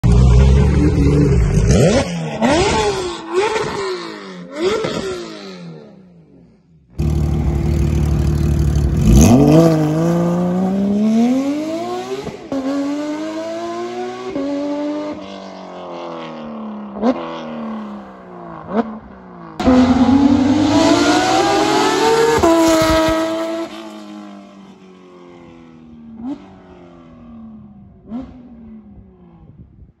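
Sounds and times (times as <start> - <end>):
sports car engine revving: 7.0 - 15.2, 19.6 - 23.9.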